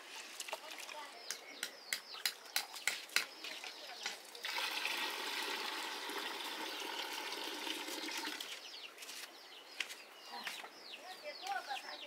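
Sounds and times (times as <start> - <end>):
bird chirps: 1.0 - 4.4, 7.9 - 12.0
water pouring into plastic bucket: 4.4 - 8.5.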